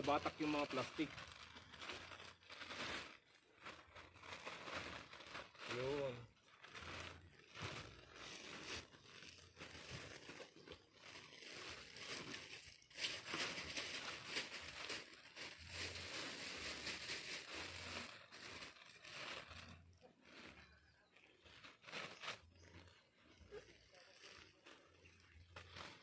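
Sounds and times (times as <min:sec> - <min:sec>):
plastic sheeting crinkling: 0:00.0 - 0:26.0.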